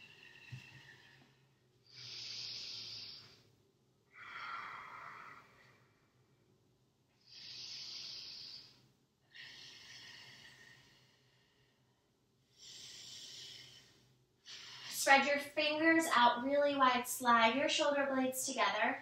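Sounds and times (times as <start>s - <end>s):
woman breathing slowly: 0.0s - 6.4s, 7.1s - 15.1s.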